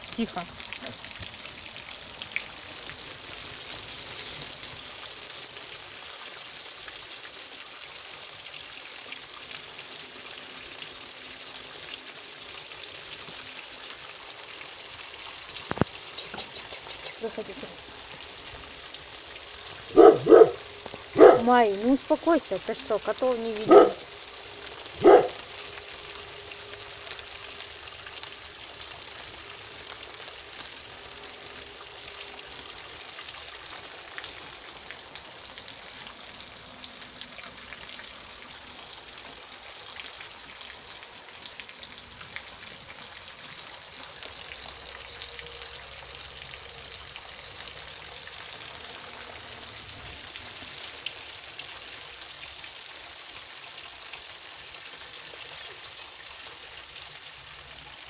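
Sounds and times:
steady rain: 0.0s - 58.0s
raindrops tapping: 15.4s - 19.0s.

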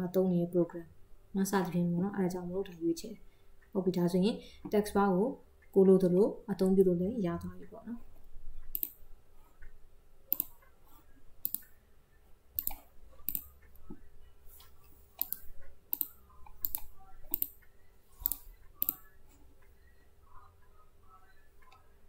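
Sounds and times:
faint steady hum: 0.0s - 22.0s
computer mouse clicking: 8.6s - 9.0s, 9.6s - 10.8s, 11.4s - 11.8s, 12.6s - 14.0s, 14.6s - 19.1s.

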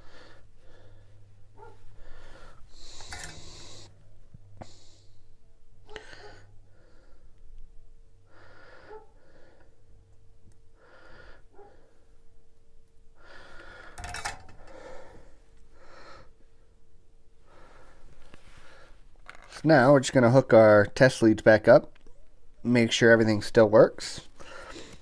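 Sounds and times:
person breathing: 0.0s - 7.4s, 8.2s - 9.8s, 10.8s - 12.1s, 13.2s - 16.6s, 17.4s - 19.1s, 24.4s - 25.0s
faint steady hum: 0.0s - 25.0s.

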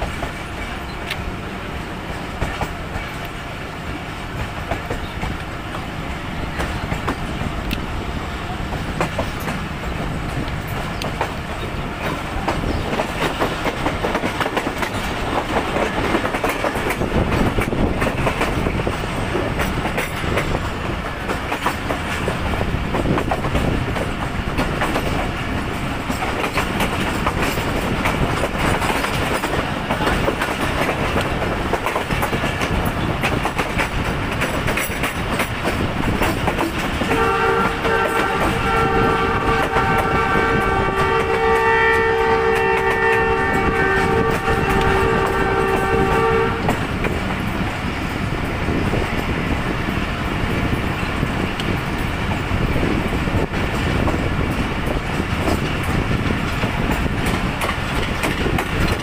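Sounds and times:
train wheels rumbling and clattering: 0.0s - 59.0s
train horn blast: 37.0s - 46.9s.

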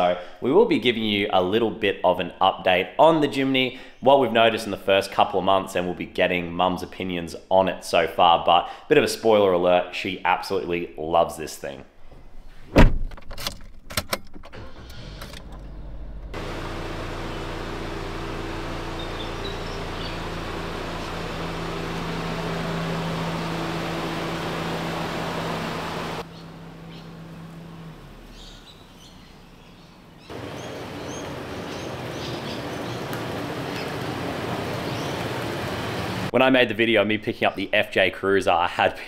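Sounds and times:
car engine running: 14.5s - 36.3s.

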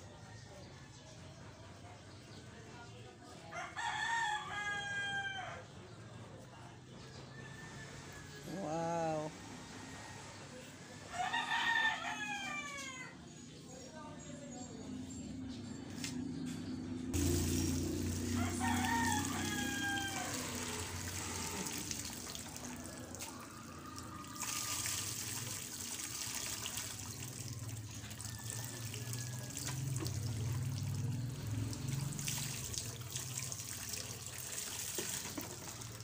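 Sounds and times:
rooster crowing: 3.6s - 5.6s, 11.0s - 13.2s, 17.2s - 25.0s, 28.1s - 30.2s
water splashing over dog: 24.2s - 36.0s.

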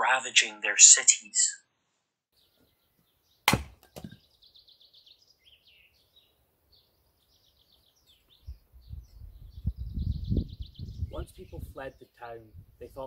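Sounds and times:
songbirds trilling: 2.4s - 13.0s
sharp knock: 3.5s - 4.2s.

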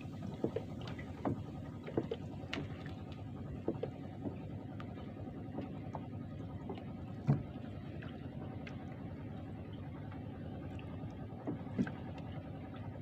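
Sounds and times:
low rumble of water and wind: 0.0s - 13.0s
light knocks of fishing line: 0.2s - 7.6s.

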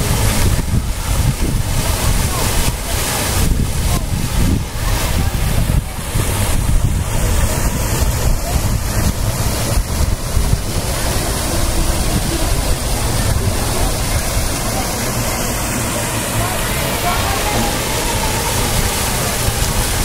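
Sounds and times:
waterfall splashing into pool: 0.0s - 20.0s
wind buffeting microphone: 0.0s - 20.0s.

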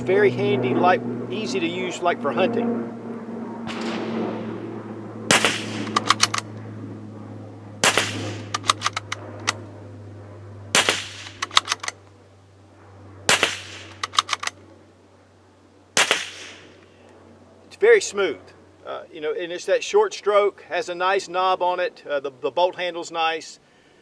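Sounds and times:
rifle shots: 3.7s - 4.6s, 5.3s - 6.5s, 7.8s - 9.6s, 10.7s - 12.0s, 13.3s - 14.6s, 16.0s - 16.7s
rifle bolt clicking: 5.8s - 6.5s, 8.5s - 9.6s, 11.2s - 12.0s, 13.8s - 14.6s.

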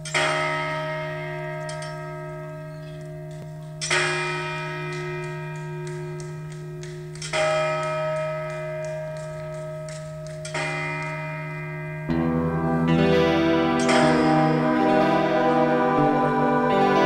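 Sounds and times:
bell tolling: 0.0s - 17.0s.

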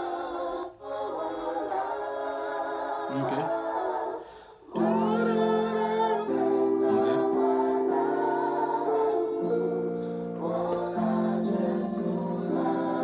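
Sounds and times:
choir-like singing voices: 0.0s - 13.0s
keyboard playing sustained chords: 4.7s - 13.0s.

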